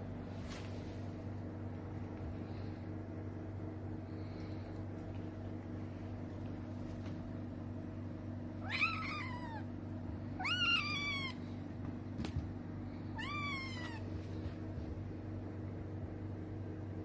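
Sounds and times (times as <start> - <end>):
kitten meowing: 8.6 - 9.7, 10.4 - 11.4, 13.2 - 14.1.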